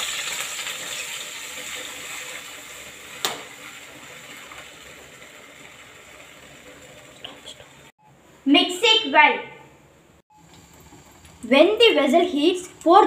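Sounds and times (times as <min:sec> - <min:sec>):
batter sizzling in a hot pan: 0:00.0 - 0:07.9.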